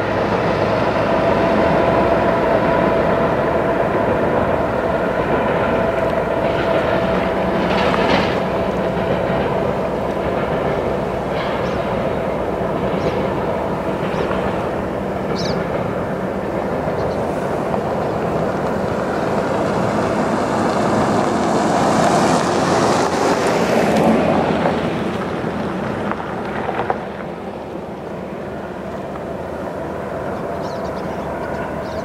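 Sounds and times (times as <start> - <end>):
diesel locomotive engines running: 0.0 - 32.0
steel wheels rolling on rails: 0.0 - 32.0.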